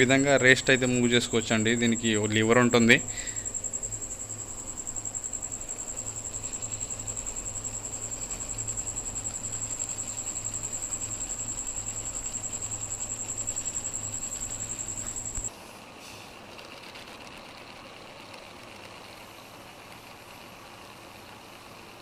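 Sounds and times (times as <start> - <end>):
milling machine running: 0.0 - 15.5.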